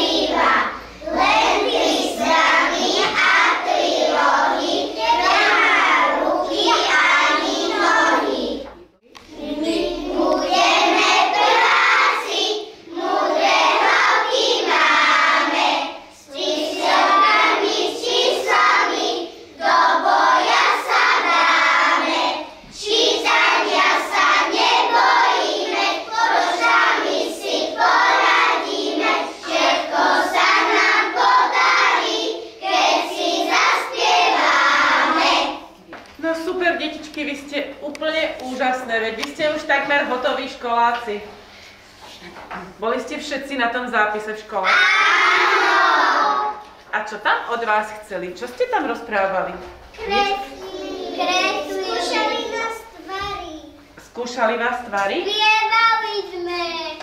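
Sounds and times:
young children singing: 0:00.0 - 0:35.8, 0:44.7 - 0:46.7, 0:50.0 - 0:53.0.

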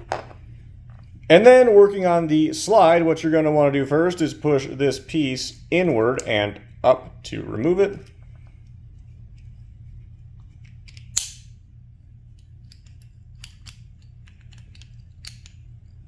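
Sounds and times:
pistol parts clicking and scraping: 0:10.4 - 0:11.5, 0:12.3 - 0:16.0.

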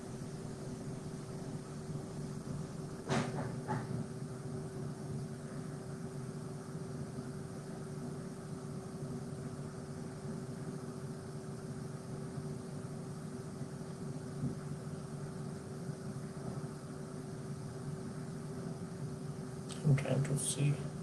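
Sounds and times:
background hum with constant tone: 0:00.0 - 0:21.0
even hiss: 0:13.3 - 0:21.0.

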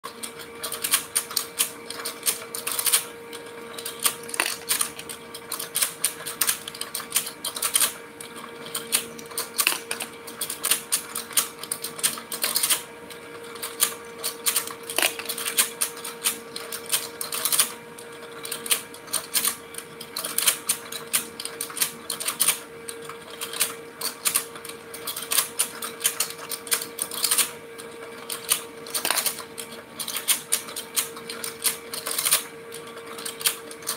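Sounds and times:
toy motor hum: 0:00.1 - 0:33.9
plastic toy clatter: 0:03.7 - 0:12.8, 0:13.6 - 0:17.8, 0:23.3 - 0:27.6, 0:28.2 - 0:33.9.

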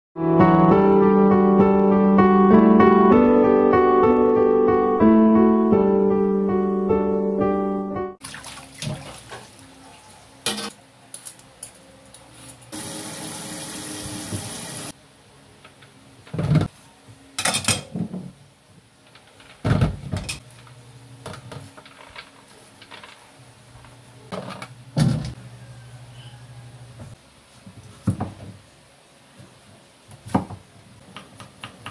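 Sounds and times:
soft piano music: 0:00.2 - 0:08.2
tap running: 0:12.8 - 0:14.9.

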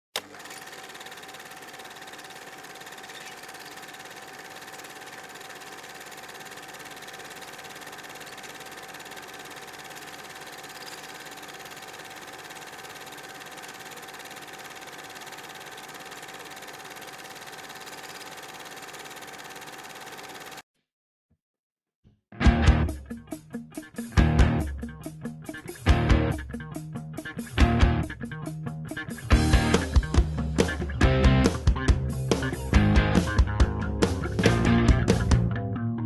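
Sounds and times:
rapid mechanical clatter: 0:00.2 - 0:20.6.

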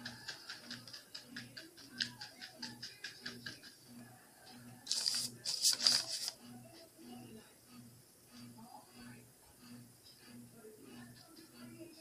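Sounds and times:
scratchy brushing: 0:04.9 - 0:06.4.

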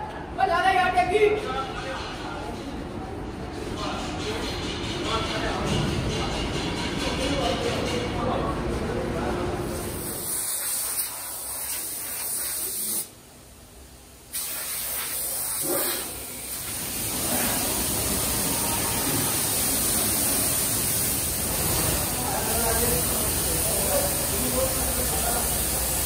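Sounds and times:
spray gun hissing: 0:09.8 - 0:13.2, 0:14.3 - 0:26.0.

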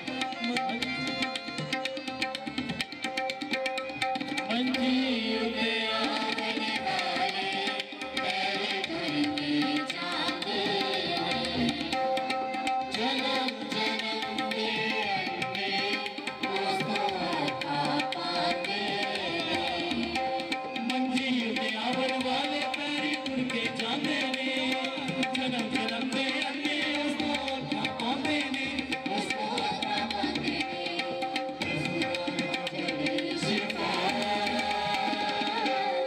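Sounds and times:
tabla drumming: 0:00.0 - 0:36.0.

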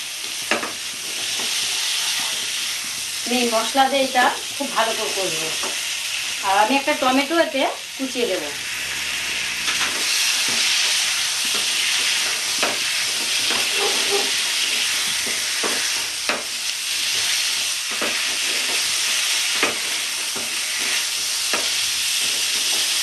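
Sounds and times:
potatoes sizzling in oil: 0:00.0 - 0:23.0
spatula scraping pan: 0:08.6 - 0:23.0.

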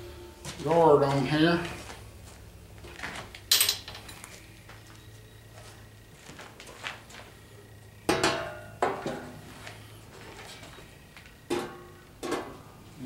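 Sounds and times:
metal parts clanking: 0:03.4 - 0:04.3.

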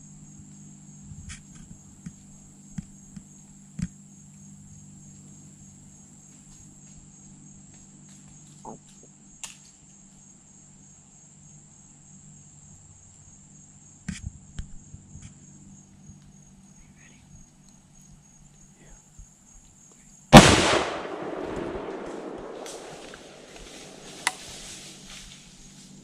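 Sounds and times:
insects chirping: 0:00.0 - 0:26.0
sharp clicks and snaps: 0:21.4 - 0:24.4.

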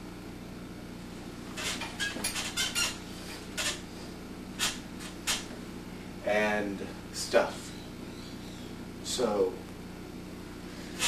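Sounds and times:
bed squeaking and rustling: 0:01.5 - 0:03.9, 0:04.6 - 0:05.6.

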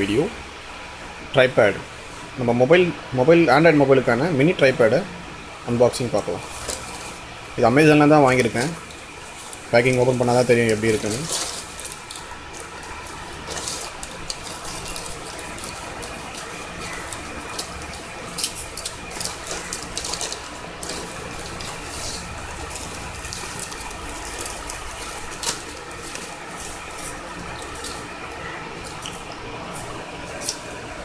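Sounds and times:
bubble wrap crinkling: 0:06.0 - 0:30.8
scissors snipping plastic: 0:09.6 - 0:28.0.

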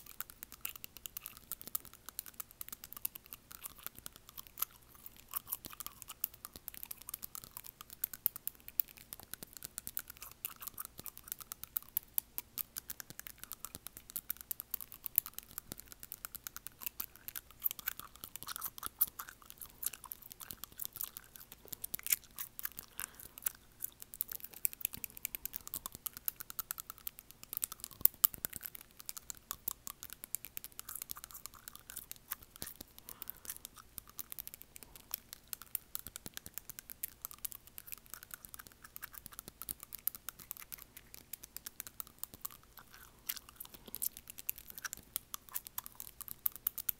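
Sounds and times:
fingernails tapping on teeth: 0:00.0 - 0:46.9
wet gum-chewing mouth sounds: 0:00.0 - 0:46.9.

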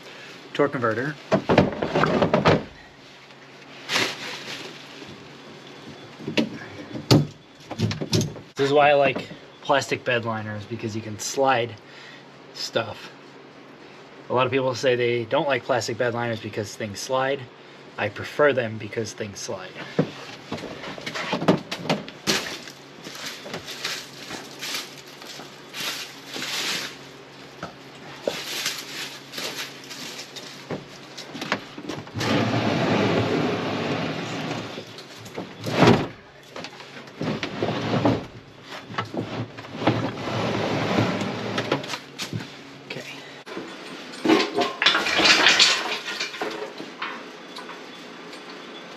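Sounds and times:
knocks and clunks: 0:01.3 - 0:02.8, 0:05.9 - 0:09.4, 0:19.8 - 0:22.6
pallet scraping on bed liner: 0:32.2 - 0:34.8, 0:37.2 - 0:41.9.

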